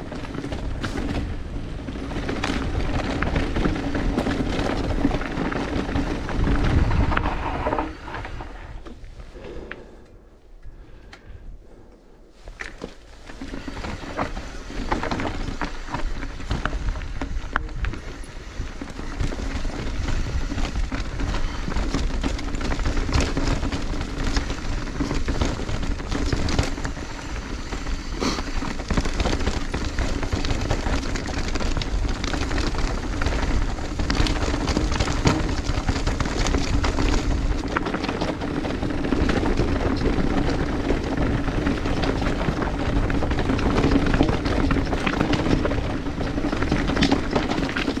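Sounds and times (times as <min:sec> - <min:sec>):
bike rattling: 0:00.0 - 0:10.0, 0:12.3 - 0:48.0
bike tyres rumbling over stony ground: 0:00.0 - 0:10.0, 0:12.3 - 0:48.0.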